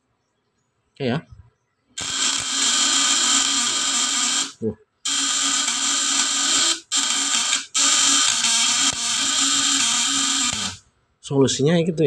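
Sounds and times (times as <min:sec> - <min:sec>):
contact breaker buzzing: 0:02.0 - 0:10.8.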